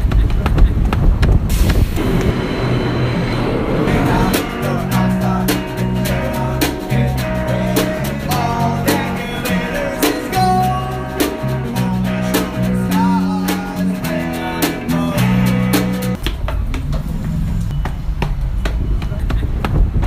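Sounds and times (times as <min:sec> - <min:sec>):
electric guitar: 0:02.0 - 0:16.2
men singing: 0:03.9 - 0:16.2
drum beat: 0:04.1 - 0:16.9.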